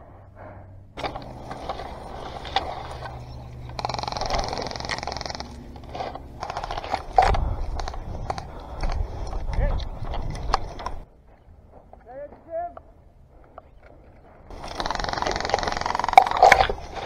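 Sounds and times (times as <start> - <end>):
branches rustling and scraping: 1.0 - 11.1.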